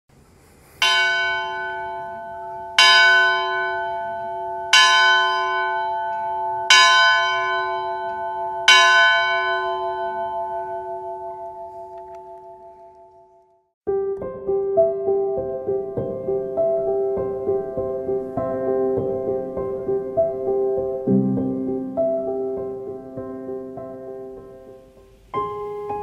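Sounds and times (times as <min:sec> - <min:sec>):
church bell tolling: 0:00.8 - 0:13.5.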